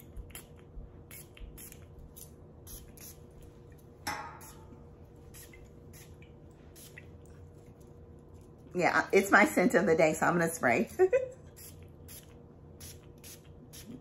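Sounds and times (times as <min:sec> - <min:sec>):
perfume spray pump spritzing: 0:11.6 - 0:14.0.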